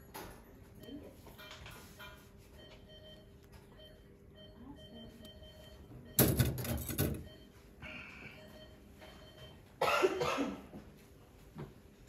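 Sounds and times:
person coughing: 9.8 - 10.8.

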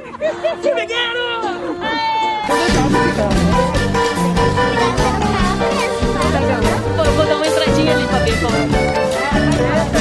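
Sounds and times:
music with steady beat and bass: 2.4 - 10.0.

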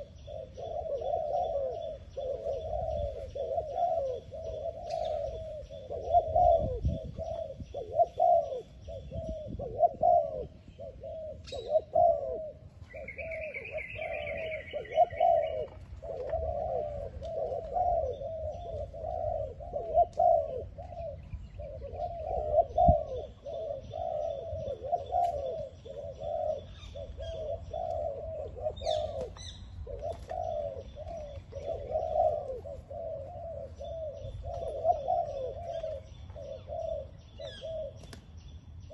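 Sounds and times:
doves cooing: 0.0 - 38.9
bird chirping: 12.8 - 15.7.

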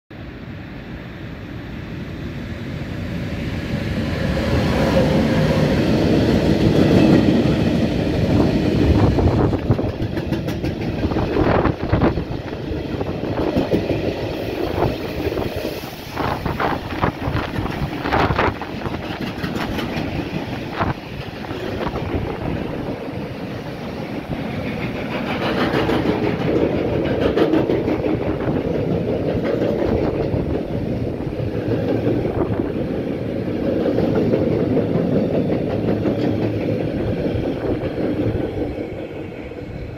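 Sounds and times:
freight train rumbling past: 0.1 - 39.9
wheels clattering over rail joints: 17.3 - 22.0.

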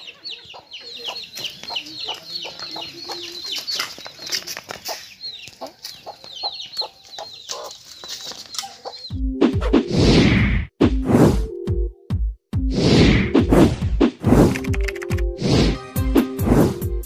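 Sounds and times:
chicks peeping: 0.0 - 9.2
hen clucking: 0.0 - 9.2.

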